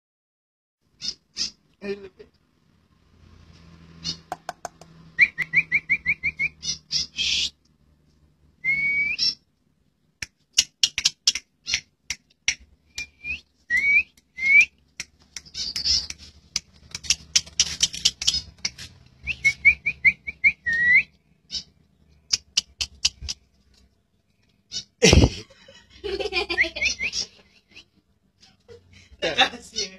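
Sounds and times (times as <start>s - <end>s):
starling whistling and chattering: 5.2s - 7.6s, 8.6s - 9.4s, 10.6s - 11.9s, 15.3s - 23.4s, 26.5s - 27.9s.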